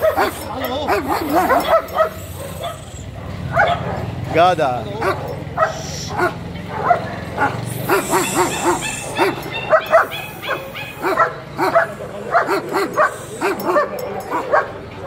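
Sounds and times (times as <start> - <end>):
dogs barking: 0.0 - 15.0.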